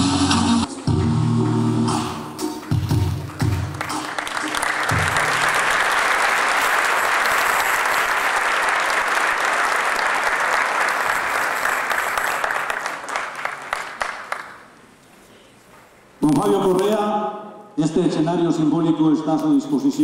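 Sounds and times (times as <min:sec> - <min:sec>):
large audience applauding: 0:02.7 - 0:14.8.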